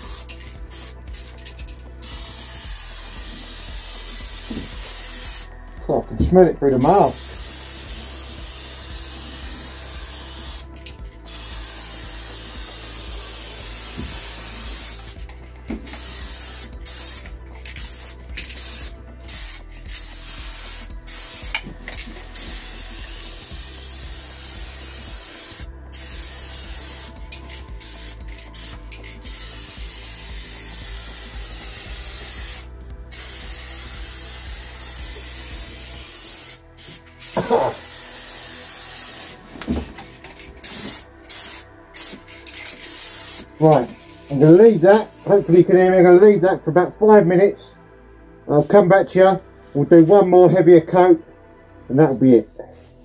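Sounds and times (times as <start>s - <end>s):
paint spray gun hissing: 2.0s - 5.5s, 7.0s - 15.2s, 15.8s - 39.8s, 40.6s - 44.5s.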